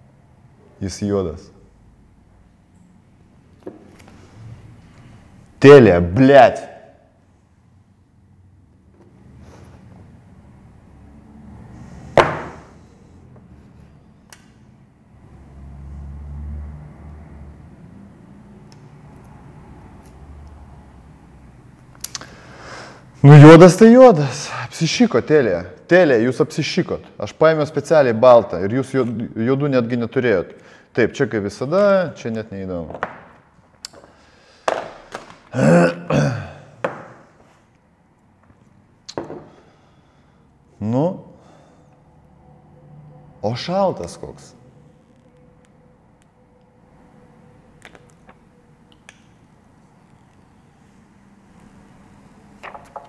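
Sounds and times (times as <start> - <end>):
objects knocking on a desk: 12.2 - 12.6, 32.9 - 33.3, 36.8 - 37.2, 39.2 - 39.5, 52.6 - 53.0
man clearing throat: 35.5 - 36.8.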